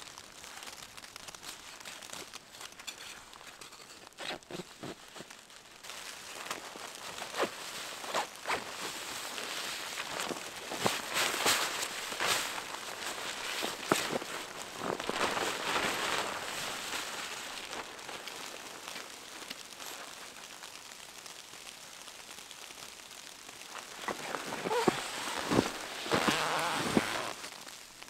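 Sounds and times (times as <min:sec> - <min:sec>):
snow hissing against fabric: 0:04.1 - 0:21.2, 0:23.6 - 0:28.0.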